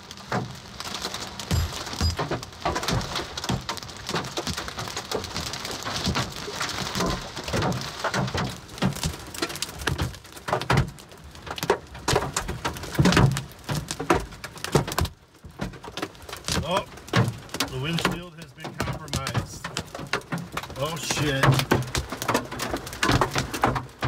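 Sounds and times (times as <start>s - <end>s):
hail hitting car roof: 0.0s - 24.0s
rain patter on car: 0.0s - 24.0s.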